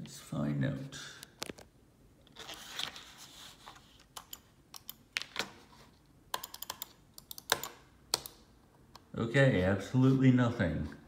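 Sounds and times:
computer mouse clicking: 4.1s - 5.0s, 6.3s - 8.4s.

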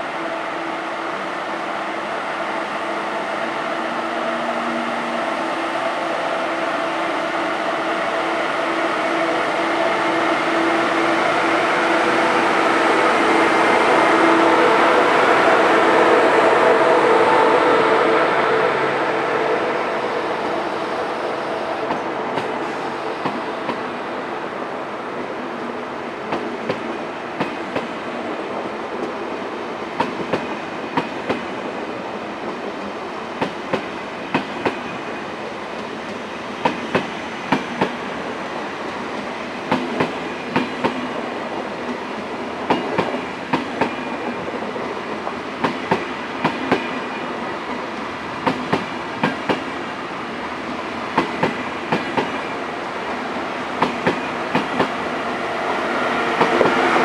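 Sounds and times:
train wheels clicking over joints: 51.1s - 52.5s, 53.8s - 55.0s.

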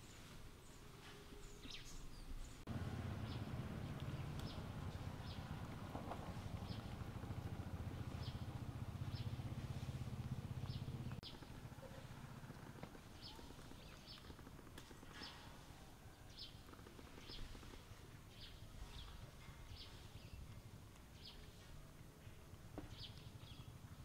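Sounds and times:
bird chirping: 1.4s - 9.7s, 10.5s - 12.0s.

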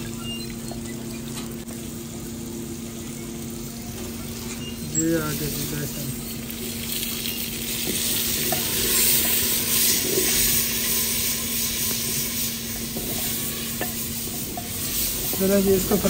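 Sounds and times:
masala sizzling in a pot: 0.0s - 16.0s
wooden stick stirring a pot: 6.3s - 16.0s.

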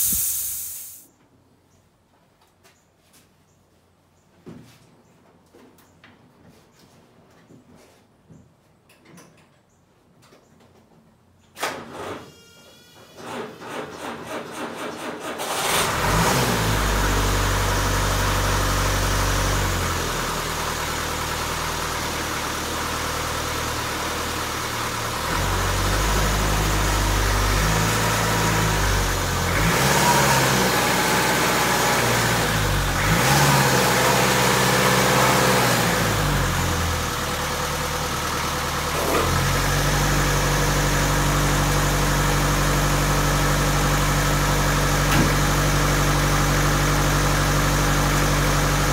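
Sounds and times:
diesel engine cranking and running: 13.2s - 48.9s.

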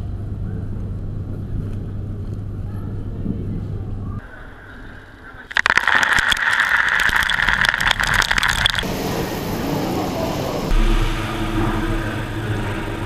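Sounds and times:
coffee beans clattering out: 5.5s - 8.8s
crowd hubbub in a hall: 8.8s - 13.0s.

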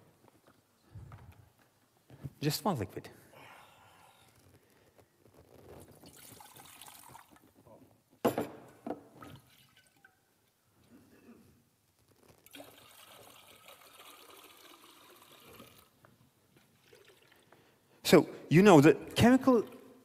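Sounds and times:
liquid pouring into glass beaker: 5.9s - 7.4s, 9.2s - 10.2s, 12.4s - 16.0s, 16.7s - 17.6s.

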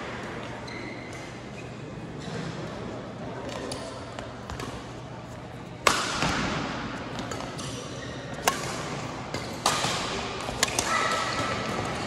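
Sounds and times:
busy hall background noise: 0.0s - 12.0s
rackets hitting shuttlecock: 5.8s - 12.0s.

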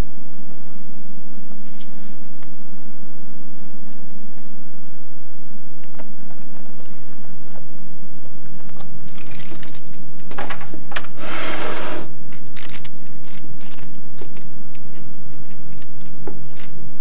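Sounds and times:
low electrical hum: 0.0s - 17.0s
handling clicks and rattles: 8.8s - 10.7s, 12.3s - 16.8s
scraping rustle: 11.1s - 12.1s.

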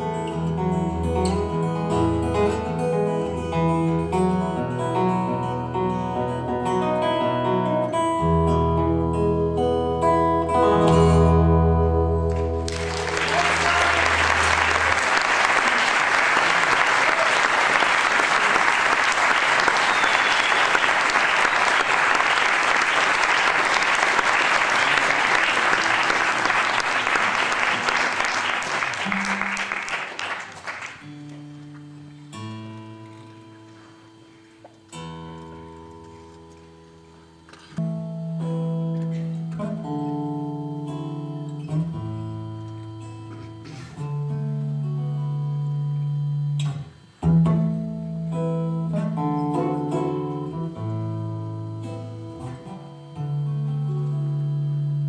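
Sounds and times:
acoustic guitar playing: 0.0s - 55.0s
guitar being tuned: 0.0s - 55.0s
audience applauding: 12.3s - 31.5s.

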